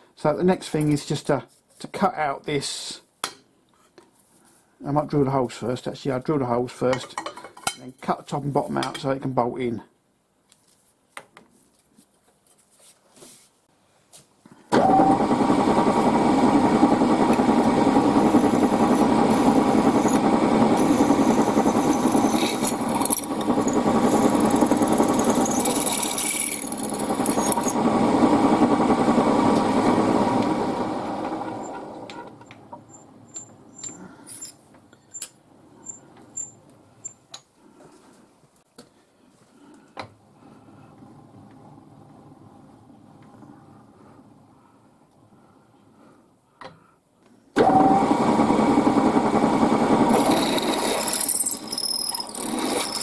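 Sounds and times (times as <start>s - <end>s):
drill boring through steel: 14.8s - 30.1s, 49.2s - 53.0s
motor spinning down: 14.8s - 32.1s, 47.6s - 53.0s.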